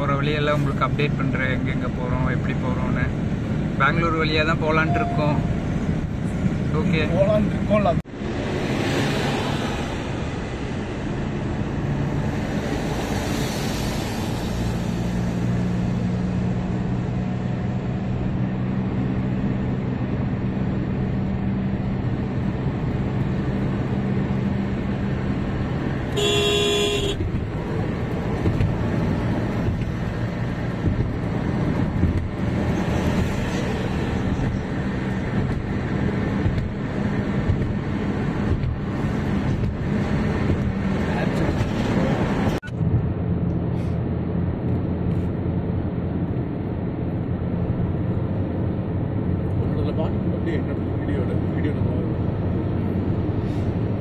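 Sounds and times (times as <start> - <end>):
car driving at highway speed: 0.0 - 54.0
vehicle horn: 26.1 - 27.2.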